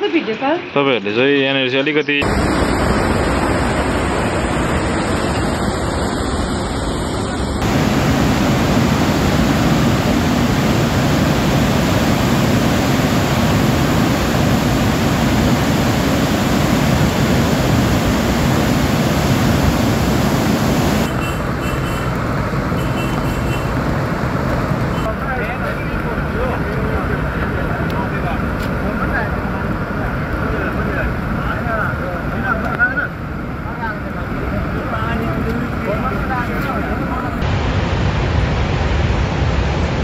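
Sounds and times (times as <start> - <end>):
floodwater rushing: 2.2 - 31.4.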